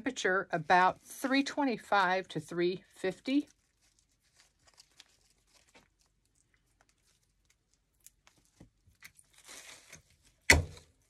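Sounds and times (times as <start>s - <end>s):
leaves rustling and stems clicking: 3.2s - 11.0s.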